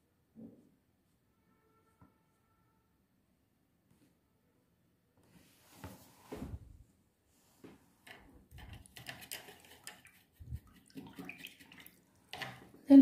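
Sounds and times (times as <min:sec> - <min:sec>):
soft knocks and scrapes: 0:05.3 - 0:06.8, 0:07.4 - 0:10.8.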